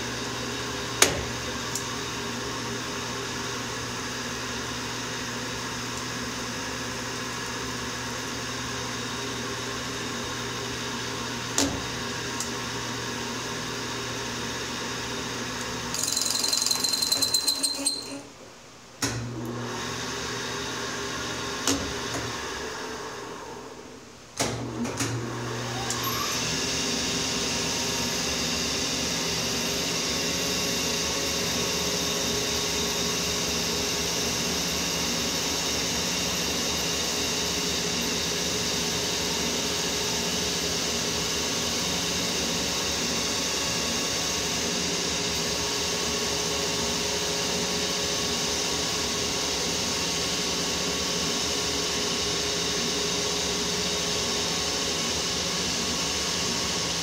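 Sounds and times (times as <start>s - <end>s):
lathe running: 15.7s - 18.3s
lathe whining tones: 16.0s - 18.4s.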